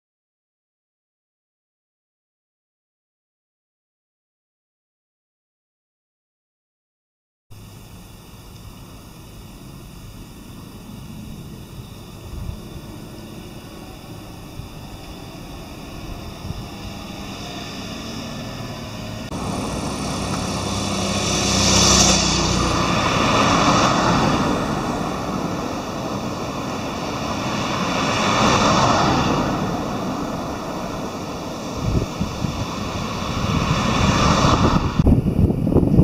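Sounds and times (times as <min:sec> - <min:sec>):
steady hum: 0:07.5 - 0:35.9
cars passing on road: 0:07.6 - 0:36.0.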